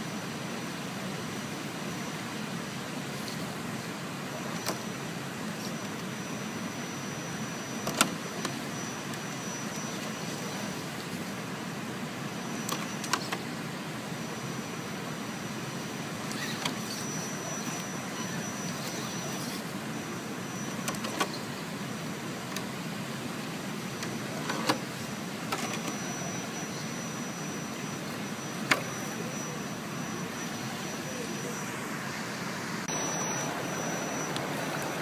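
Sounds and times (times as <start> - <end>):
rc car motor whining: 16.2 - 19.8.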